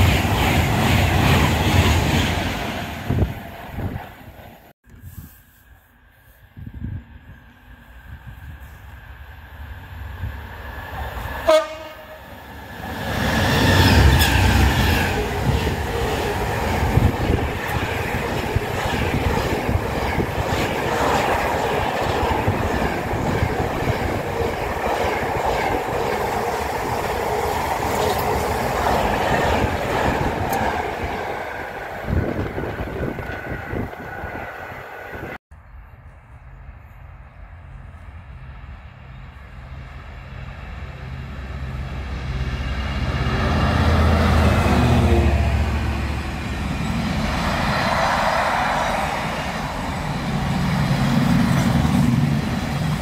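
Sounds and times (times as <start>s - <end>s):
freight train rumbling past: 0.0s - 4.7s, 6.7s - 53.0s
locomotive horn blast: 11.4s - 12.4s.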